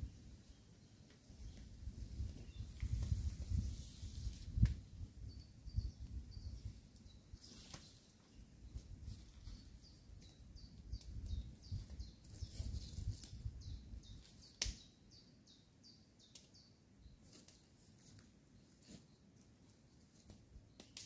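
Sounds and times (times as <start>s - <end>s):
small bird chirping: 0.1s - 3.7s, 4.9s - 21.0s.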